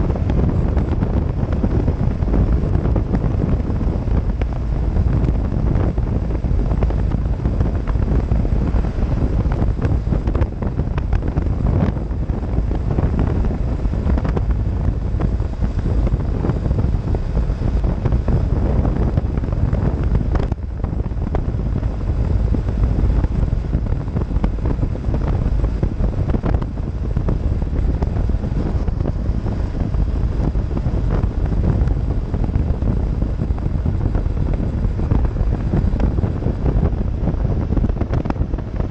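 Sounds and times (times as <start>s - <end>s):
motorcycle running: 0.0s - 38.9s
road noise: 0.0s - 38.9s
wind buffeting microphone: 0.0s - 38.9s.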